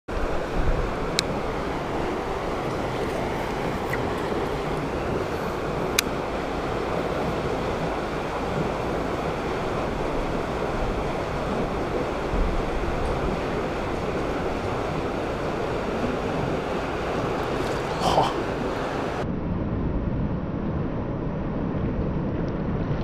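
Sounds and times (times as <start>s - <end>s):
steady rushing noise: 0.1s - 23.0s.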